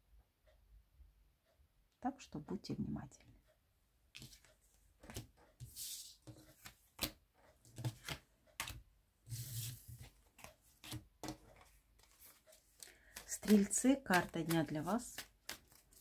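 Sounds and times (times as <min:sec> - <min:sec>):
cards being shuffled: 0:04.2 - 0:16.0.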